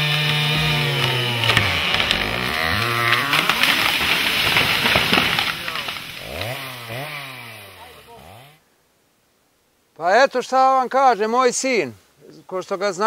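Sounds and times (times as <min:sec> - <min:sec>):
tree crashing down: 0:00.0 - 0:08.0
chainsaw running: 0:00.0 - 0:08.6.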